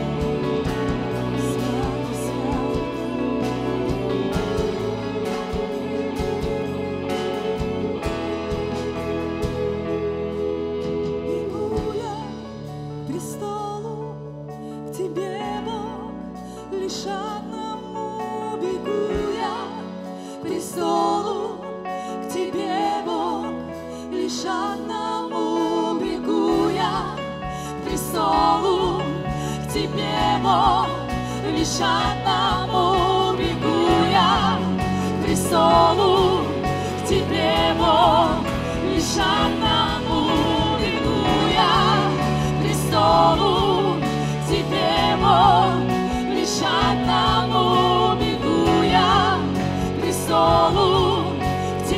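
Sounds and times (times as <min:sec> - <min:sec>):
people singing: 0:00.0 - 0:13.9, 0:16.7 - 0:51.9
bass: 0:00.0 - 0:51.9
worship band playing: 0:00.0 - 0:51.9.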